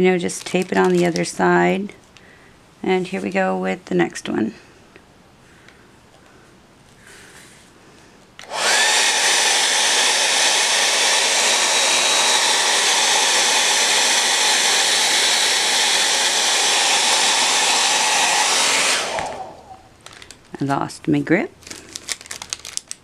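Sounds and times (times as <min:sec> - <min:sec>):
hair dryer motor spinning up: 0:08.4 - 0:19.9
hair dryer running: 0:08.4 - 0:19.9.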